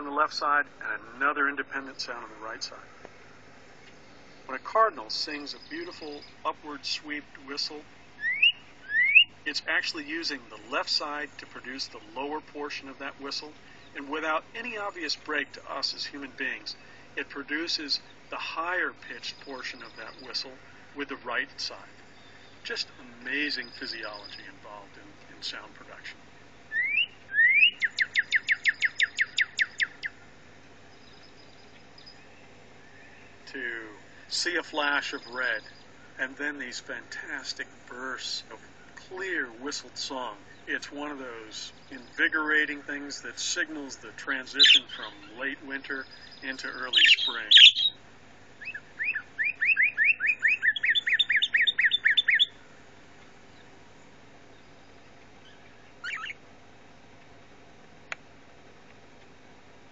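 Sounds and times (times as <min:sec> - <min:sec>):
bird song through speakers: 0:00.0 - 0:03.1, 0:03.8 - 0:48.0, 0:48.6 - 0:53.8, 0:54.4 - 0:56.4
bird song from a laptop: 0:04.4 - 0:06.4, 0:07.5 - 0:09.3, 0:19.1 - 0:20.4, 0:21.6 - 0:24.6, 0:26.7 - 0:30.1, 0:34.9 - 0:35.9, 0:41.5 - 0:42.5, 0:44.4 - 0:48.0, 0:48.6 - 0:52.5, 0:55.4 - 0:56.4.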